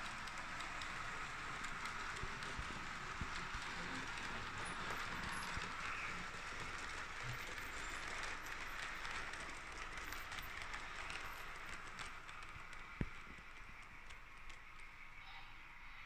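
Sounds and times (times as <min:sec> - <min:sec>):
model train wheels rolling on rails: 0:00.0 - 0:16.0
faint clicks: 0:08.0 - 0:15.3.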